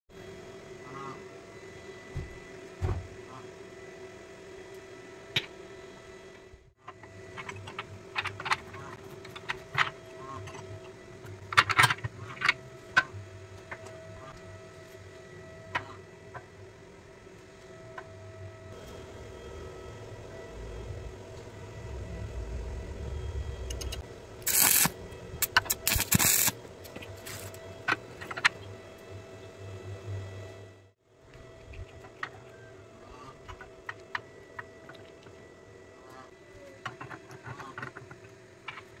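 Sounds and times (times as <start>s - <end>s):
steady hum: 0.2s - 39.0s
welding arc crackling: 23.7s - 27.6s
metal parts clicking and tapping: 24.5s - 26.5s.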